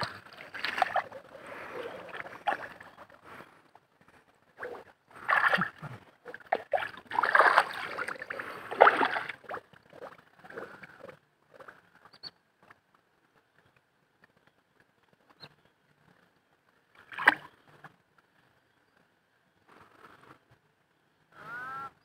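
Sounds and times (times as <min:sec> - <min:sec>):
hands squelching in wet mud: 0:04.6 - 0:09.6.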